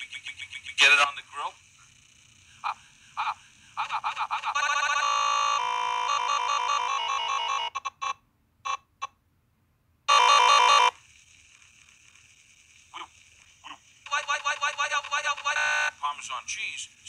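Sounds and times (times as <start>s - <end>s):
stuttered pitch-shifted voice tune: 13.7s - 16.9s.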